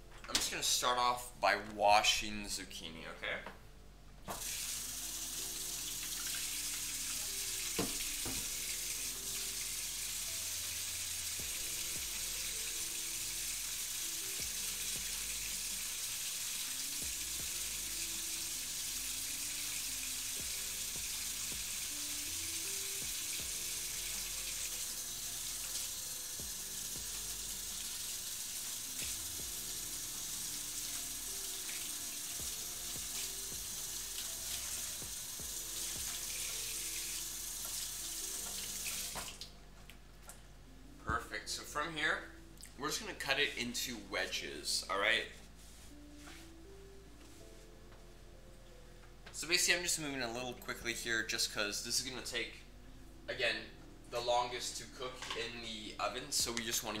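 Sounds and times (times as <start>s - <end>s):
faucet running into sink: 4.3s - 39.4s.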